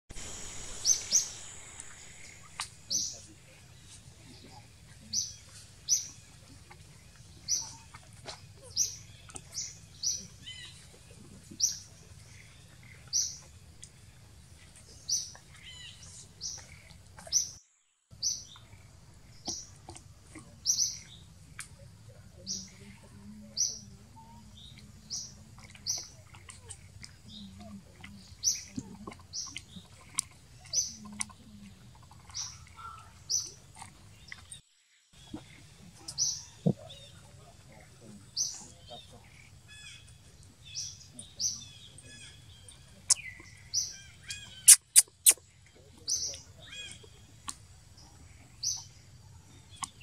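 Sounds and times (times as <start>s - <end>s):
faint low hum: 0.1s - 34.6s
high-pitched animal chirps: 44.3s - 45.4s.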